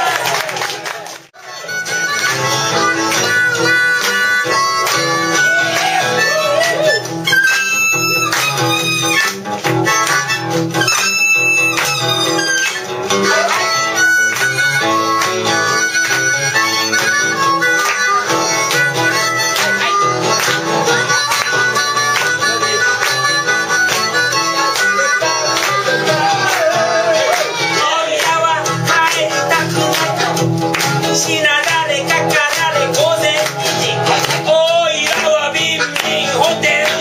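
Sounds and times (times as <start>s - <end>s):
guitar accompaniment: 0.0s - 37.0s
harmonica solo: 1.4s - 37.0s.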